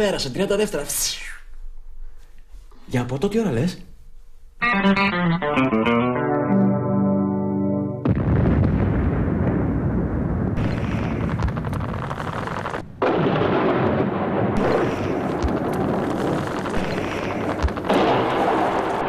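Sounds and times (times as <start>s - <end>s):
explosions: 8.0s - 19.0s
gunfire crackling: 8.1s - 19.0s.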